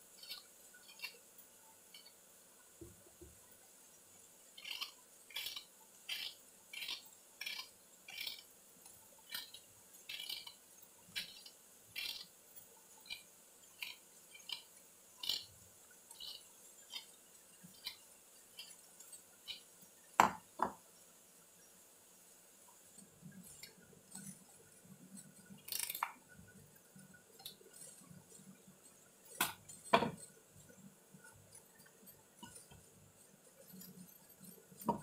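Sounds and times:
knife scraping mango skin: 0:04.6 - 0:08.5, 0:09.2 - 0:12.3.

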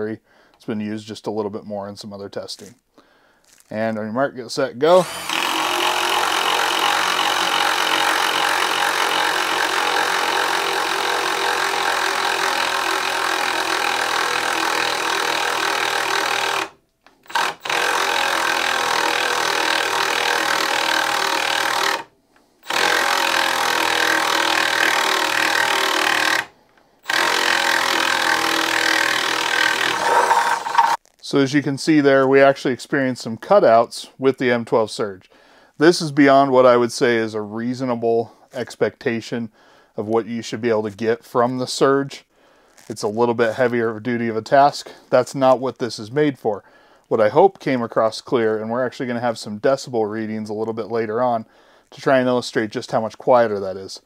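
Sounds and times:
impact driver boring through wood: 0:04.9 - 0:31.0.

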